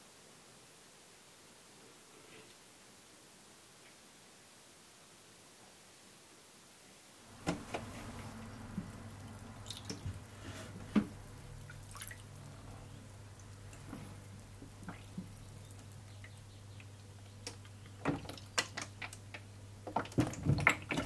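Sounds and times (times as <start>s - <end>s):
water dripping and splashing: 7.3s - 21.0s.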